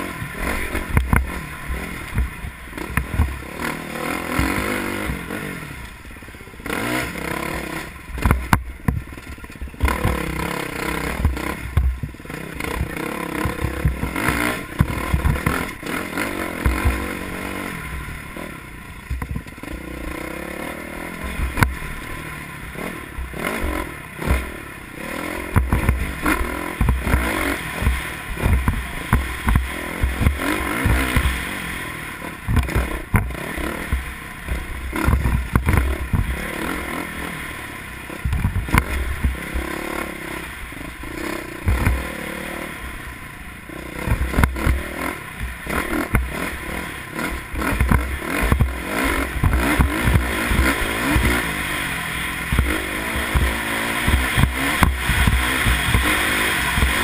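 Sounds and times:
motorcycle engine revving: 0:00.0 - 0:57.0
bike clattering over bumps: 0:04.1 - 0:05.3, 0:08.2 - 0:17.5, 0:25.4 - 0:31.6, 0:32.4 - 0:36.5, 0:47.2 - 0:51.7.

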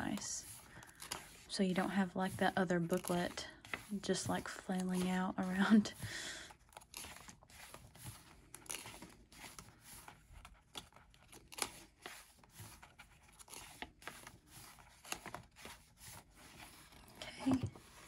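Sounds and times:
book pages being turned: 0:00.0 - 0:18.0.

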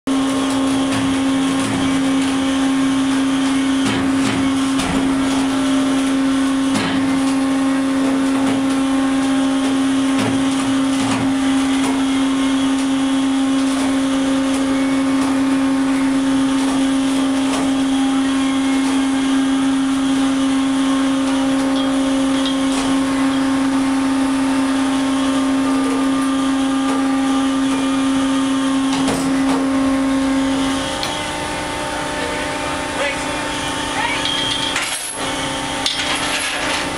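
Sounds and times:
deck machinery drone: 0:00.1 - 0:36.9
winch hum: 0:00.1 - 0:36.9.

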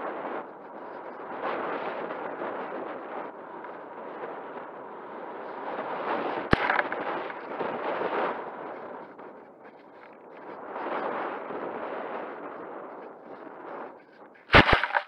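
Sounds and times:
sharp click: 0:14.5 - 0:15.0.

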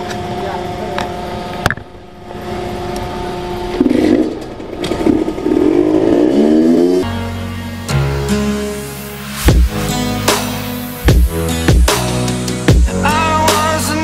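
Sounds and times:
small motorcycle engine revving: 0:02.4 - 0:07.1.

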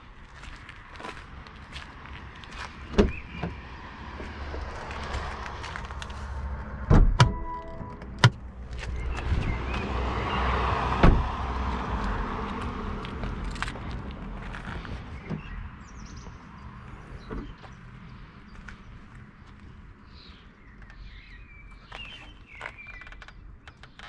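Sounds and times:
car doors shutting: 0:06.8 - 0:11.5.

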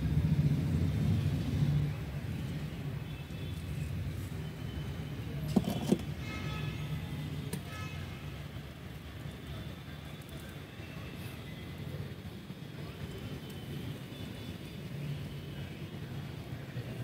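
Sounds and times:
distant road traffic rumble: 0:00.0 - 0:17.0.

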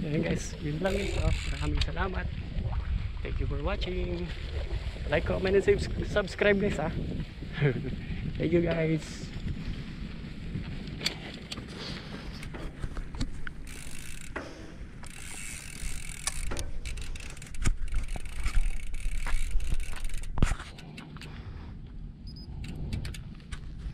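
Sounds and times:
wind buffeting microphone: 0:00.0 - 0:23.9.

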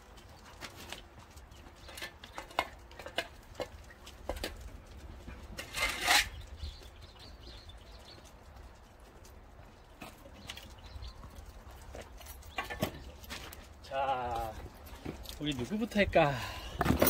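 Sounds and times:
dog claws clicking on asphalt: 0:00.0 - 0:15.8
harsh scrape: 0:05.5 - 0:06.5.

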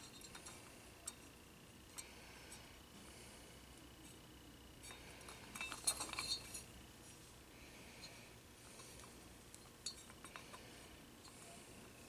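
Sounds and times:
light clicks and clinks: 0:00.0 - 0:01.3, 0:04.8 - 0:06.7, 0:08.0 - 0:11.5.

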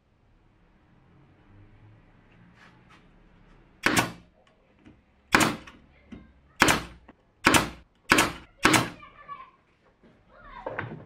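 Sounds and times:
nail gun firing with air hiss: 0:03.8 - 0:04.2, 0:05.3 - 0:05.7, 0:06.6 - 0:09.0.

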